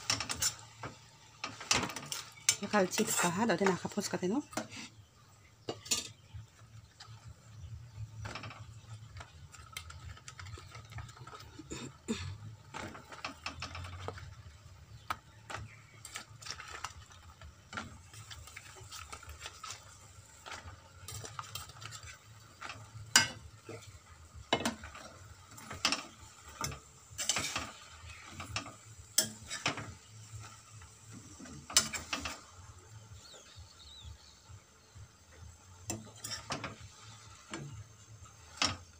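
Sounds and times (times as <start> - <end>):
metal spoon scraping metal pan: 0.0 - 0.7, 5.7 - 6.2, 25.6 - 29.9, 35.9 - 37.7
faint sizzle of frying: 0.0 - 38.9.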